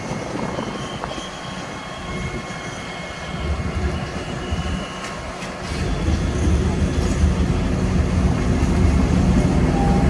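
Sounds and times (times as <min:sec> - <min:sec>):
locomotive engine rumble: 0:00.0 - 0:10.0
wheels squealing on track: 0:00.1 - 0:07.2.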